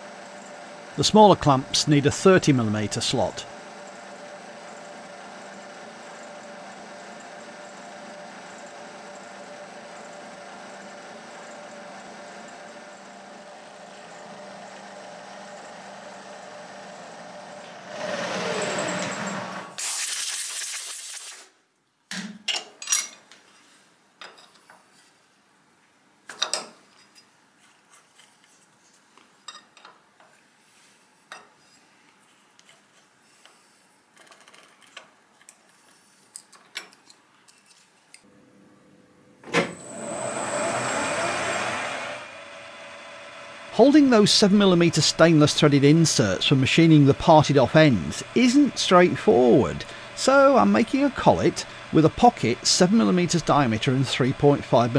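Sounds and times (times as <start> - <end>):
lathe running: 0.0 - 19.8, 39.5 - 54.9
milling machine humming: 0.0 - 19.8, 38.3 - 54.9
loud hiss: 19.7 - 21.5.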